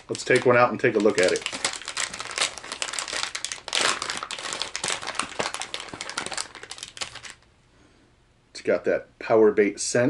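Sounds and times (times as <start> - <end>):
plastic bait pouch crinkling: 0.0 - 7.4.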